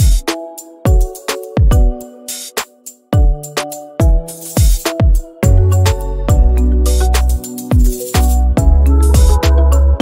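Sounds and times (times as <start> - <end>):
kick drum hits: 1.6 - 2.0
bass and held chords: 5.4 - 10.0.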